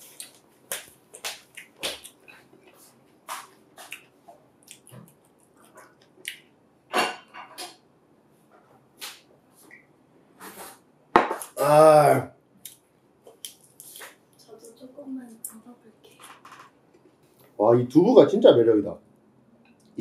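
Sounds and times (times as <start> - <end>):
lip smacks: 3.3 - 6.5
chewing: 3.8 - 6.4.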